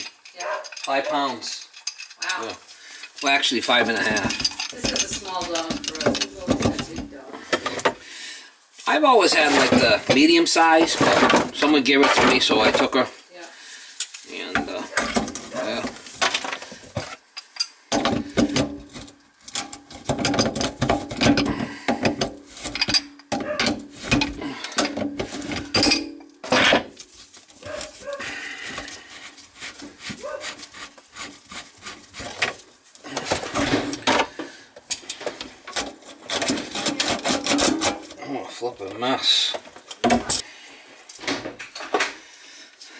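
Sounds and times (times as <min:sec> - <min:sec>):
wrench scraping rusted metal: 0:00.0 - 0:08.0, 0:14.0 - 0:28.0, 0:28.6 - 0:38.2.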